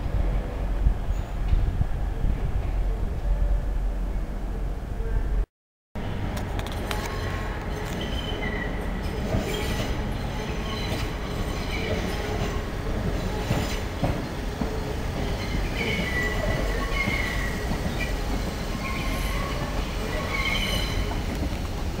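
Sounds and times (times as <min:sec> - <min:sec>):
steady train rumble: 0:00.0 - 0:22.0
train wheels squealing: 0:06.9 - 0:21.5.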